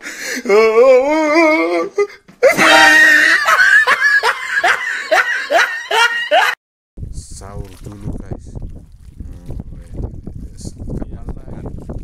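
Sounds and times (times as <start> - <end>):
person laughing loudly: 2.4 - 6.6.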